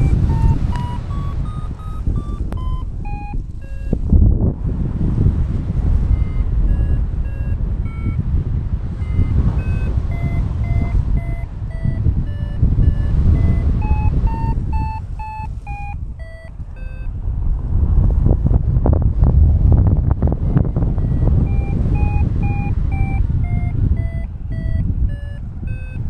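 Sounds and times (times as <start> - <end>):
variometer beeping: 0.0 - 4.4, 5.8 - 17.2, 20.2 - 26.0
wind noise on microphone: 0.0 - 26.0.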